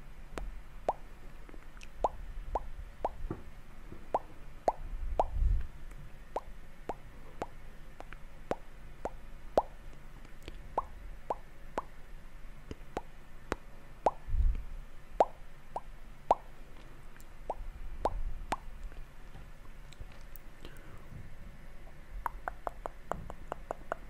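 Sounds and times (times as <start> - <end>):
wet mouth popping clicks: 0.4 - 3.2, 4.2 - 5.4, 6.4 - 11.9, 15.2 - 18.7, 22.2 - 24.0.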